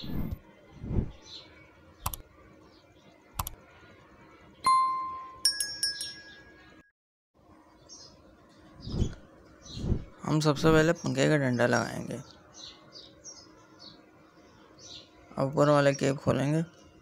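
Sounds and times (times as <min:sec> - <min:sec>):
mouse clicks: 0:02.0 - 0:02.3, 0:03.4 - 0:03.6
chiming tones: 0:04.6 - 0:06.9
bell ding: 0:04.7 - 0:06.9.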